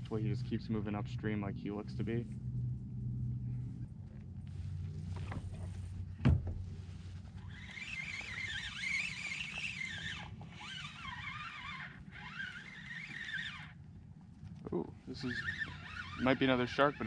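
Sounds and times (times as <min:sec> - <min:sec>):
fishing reel gears whining: 0:07.2 - 0:13.8, 0:15.1 - 0:17.0.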